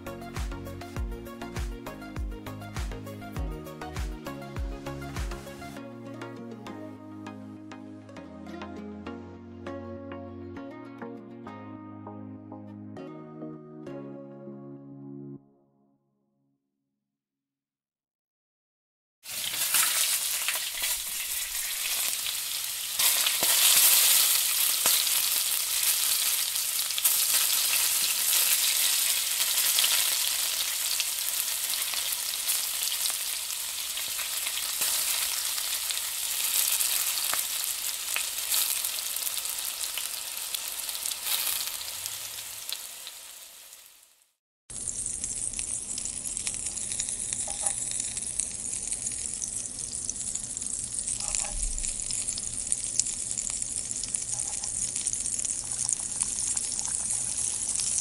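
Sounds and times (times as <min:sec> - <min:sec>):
chilli rings sizzling in a pan: 0:19.2 - 0:58.0.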